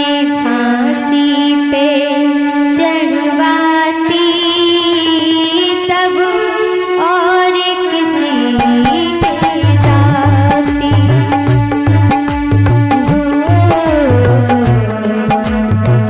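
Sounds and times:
steady drone: 0:08.1 - 0:16.0
remix music with held notes: 0:08.6 - 0:16.0.

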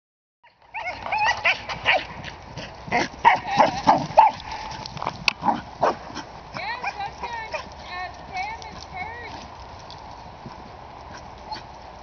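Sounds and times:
dog barking and yipping: 0:00.4 - 0:02.2, 0:02.9 - 0:04.4, 0:05.4 - 0:07.7.

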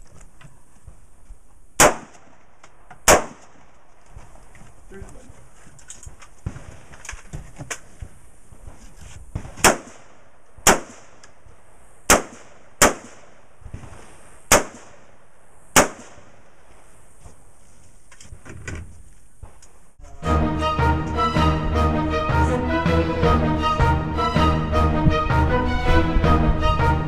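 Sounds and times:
rifle shots: 0:01.8 - 0:03.9, 0:09.3 - 0:11.2, 0:12.1 - 0:16.6.

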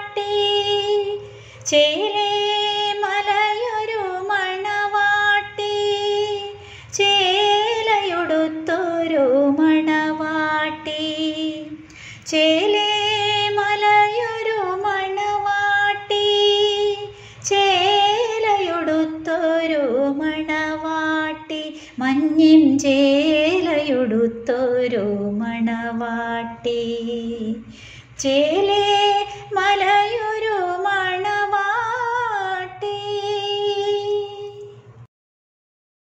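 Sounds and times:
woman singing: 0:00.0 - 0:34.9
singer breathing: 0:01.2 - 0:01.6, 0:06.6 - 0:06.9, 0:11.8 - 0:12.3, 0:17.1 - 0:17.4, 0:21.7 - 0:22.0, 0:27.6 - 0:28.2.

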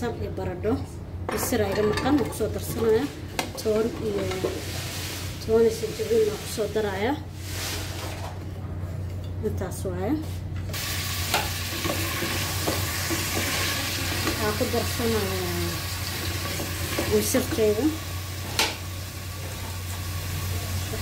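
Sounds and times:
vegetables sizzling in a pot: 0:04.1 - 0:08.0, 0:10.7 - 0:21.0.

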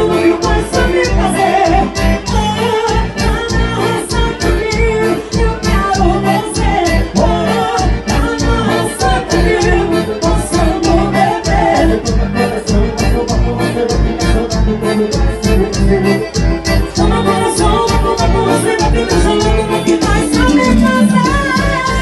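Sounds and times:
live band playing amplified music: 0:00.0 - 0:22.0
person singing: 0:00.0 - 0:22.0
heavy bass beat: 0:04.7 - 0:22.0.

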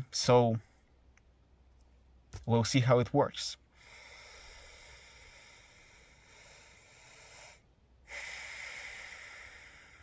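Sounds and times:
man breathing: 0:03.7 - 0:10.0.

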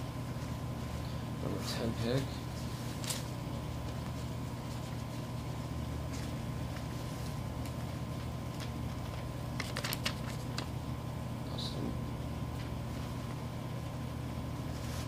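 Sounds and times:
steady low hum: 0:00.0 - 0:15.0
paper crinkling: 0:02.5 - 0:10.8
paper slips rustling in cloth bag: 0:07.7 - 0:10.7.

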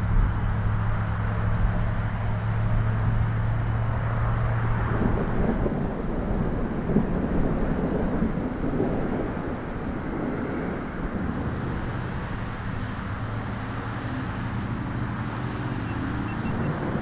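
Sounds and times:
low outdoor rumble: 0:00.0 - 0:17.0
vehicle engine hum: 0:00.0 - 0:17.0.

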